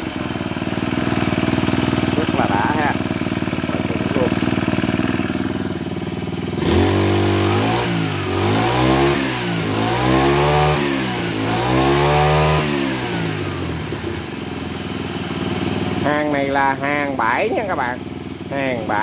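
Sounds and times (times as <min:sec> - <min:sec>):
brush cutter engine revving: 0:00.0 - 0:14.3.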